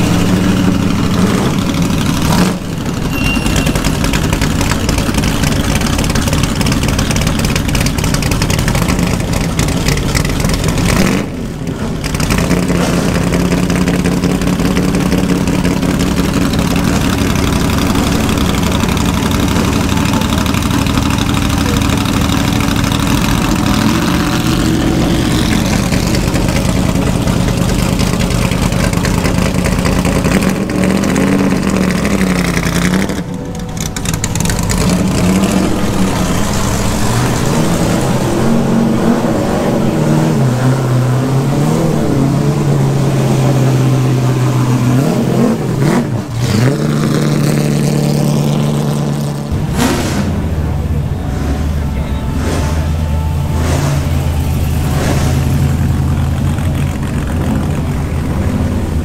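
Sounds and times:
racing car engine idling: 0:00.0 - 0:39.0, 0:45.6 - 0:59.0
engine rev blip: 0:02.2 - 0:05.9, 0:49.5 - 0:59.0.

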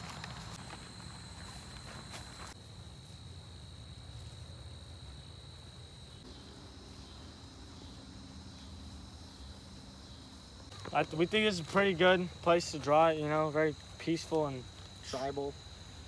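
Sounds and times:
soft steps or rustles: 0:00.0 - 0:03.2
insects chirring: 0:00.0 - 0:16.0.

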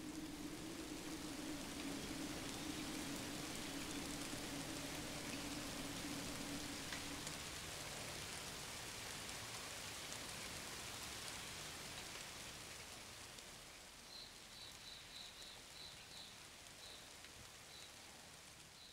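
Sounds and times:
steady rain: 0:00.0 - 0:18.9.

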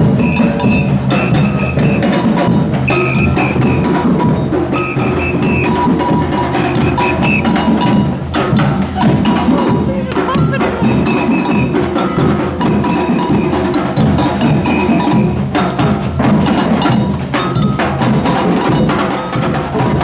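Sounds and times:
high ringing figure: 0:00.0 - 0:15.6
drum band playing: 0:00.0 - 0:20.0.

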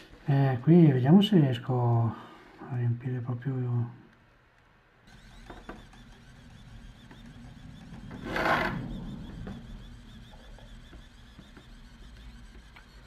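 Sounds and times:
small motor whirring: 0:05.0 - 0:13.0.

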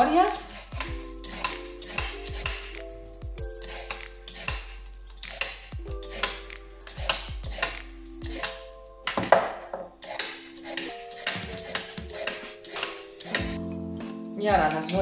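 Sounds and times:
background music: 0:00.0 - 0:15.0
peeler scraping carrots: 0:00.3 - 0:02.8, 0:03.5 - 0:08.6, 0:10.0 - 0:13.6.

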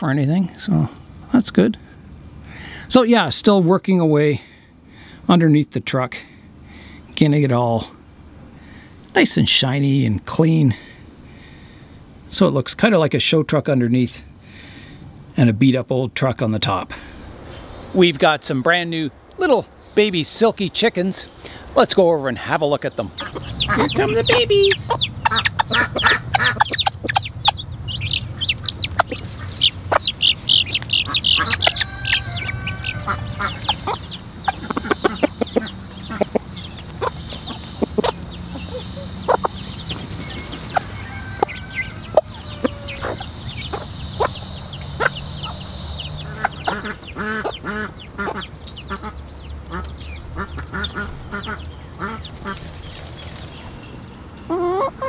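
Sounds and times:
chickens clucking: 0:16.6 - 0:55.0
chicks peeping: 0:16.7 - 0:55.0
beaks pecking corn off ground: 0:22.9 - 0:53.7.

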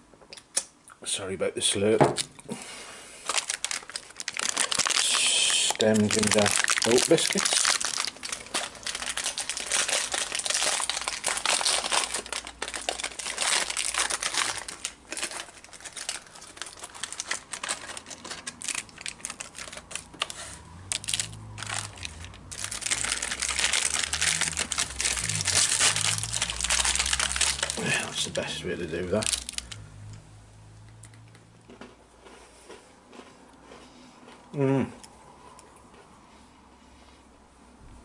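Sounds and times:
foil pack crinkling: 0:03.2 - 0:29.8.

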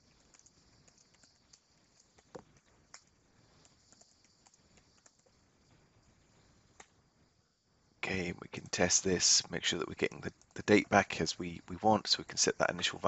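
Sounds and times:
faint keyboard clicks: 0:00.0 - 0:05.4, 0:06.7 - 0:07.0.

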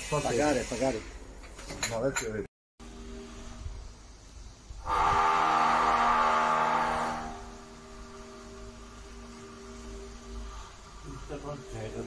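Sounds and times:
steady machine hum: 0:02.8 - 0:12.0
loud harsh mechanical noise: 0:04.8 - 0:12.0.

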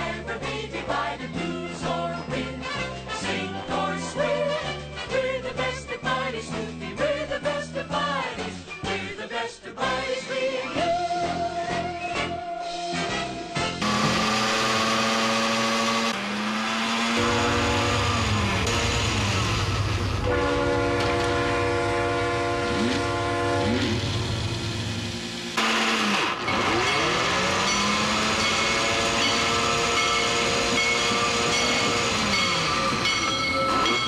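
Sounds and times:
train horns: 0:12.9 - 0:24.7, 0:25.6 - 0:34.0.

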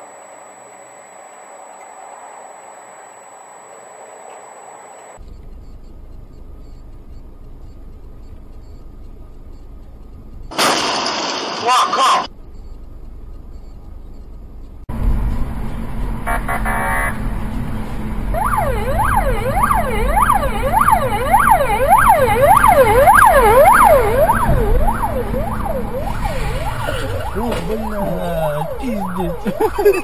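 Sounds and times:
car engine and road rumble: 0:02.0 - 0:30.0
police siren yelping: 0:18.3 - 0:30.0
short pulsing tone: 0:18.4 - 0:29.7.

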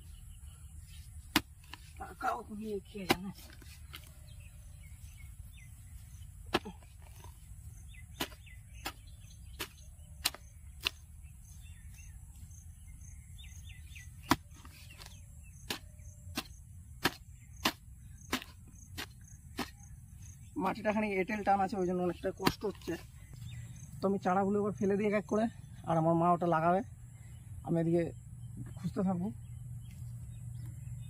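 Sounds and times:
birds chirping: 0:00.0 - 0:31.0
hoe chopping into clay soil: 0:01.3 - 0:01.9, 0:03.0 - 0:04.1, 0:06.5 - 0:07.4, 0:08.0 - 0:11.1, 0:14.2 - 0:19.9, 0:22.4 - 0:23.0.

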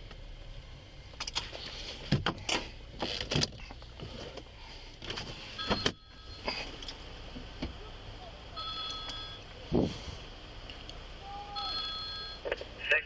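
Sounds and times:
low steady hum: 0:00.0 - 0:13.0
knocks and clunks in car: 0:02.0 - 0:04.1.

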